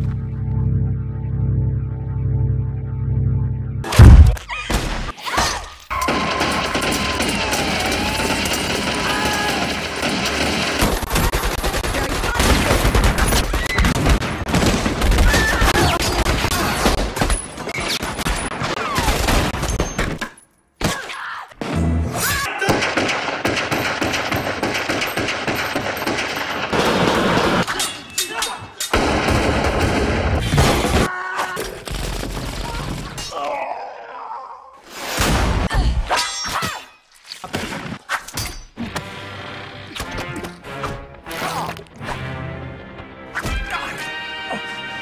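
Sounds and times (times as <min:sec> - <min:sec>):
film music: 0:00.0 - 0:04.4, 0:38.8 - 0:45.0
rapid gunshots: 0:06.1 - 0:20.0, 0:22.6 - 0:27.7, 0:28.9 - 0:31.1.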